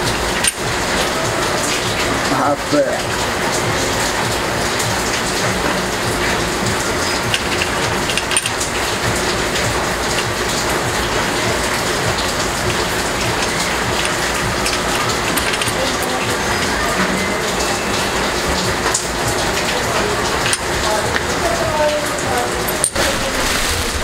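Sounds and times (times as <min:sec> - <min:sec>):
steady rain patter: 0:00.0 - 0:24.0.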